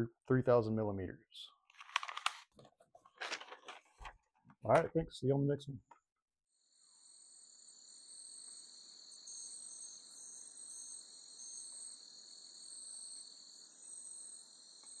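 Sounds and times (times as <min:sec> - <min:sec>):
insects trilling: 0:06.6 - 0:15.0.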